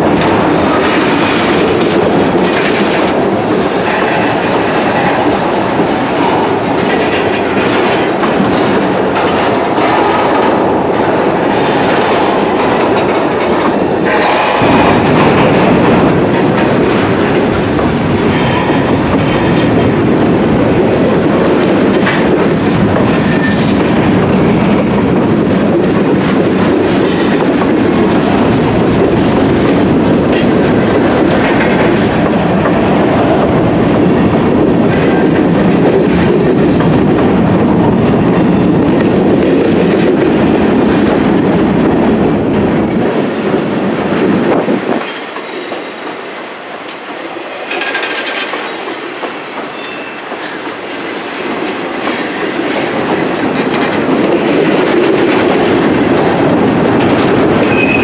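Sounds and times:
train wheels clattering on rails: 0.0s - 58.0s
high wheel squeals: 49.7s - 50.3s, 57.7s - 58.0s.

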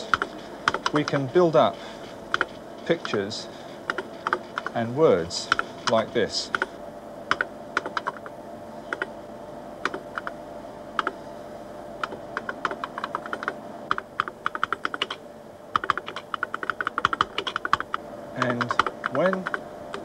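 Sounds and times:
faint steady hum: 0.0s - 20.0s
keyboard keys clicking: 0.1s - 1.2s, 7.3s - 8.2s, 12.0s - 15.2s, 15.8s - 20.0s.

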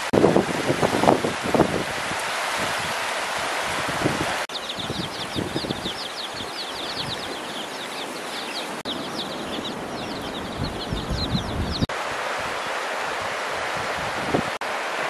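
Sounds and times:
ducklings and chicks peeping: 4.5s - 11.9s.

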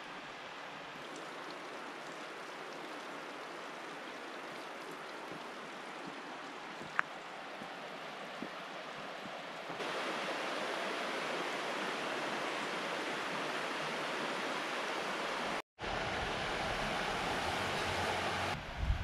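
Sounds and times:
river rushing over rocks: 7.4s - 18.6s.

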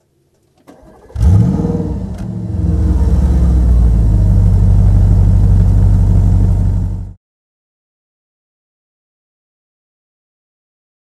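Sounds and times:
car engine idling: 0.4s - 7.2s.

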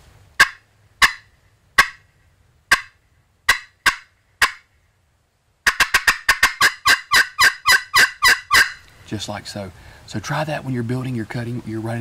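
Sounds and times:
turkey pot call cutting: 0.4s - 2.1s, 2.7s - 4.7s, 5.6s - 9.0s.

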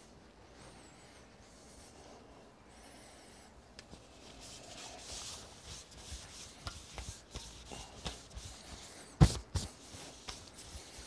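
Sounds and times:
cloth rubbing over ball: 4.0s - 11.0s.

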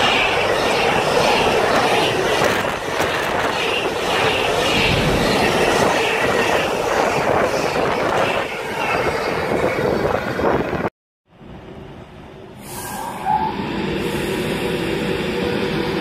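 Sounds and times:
train wheels rumbling on rails: 0.0s - 10.9s.

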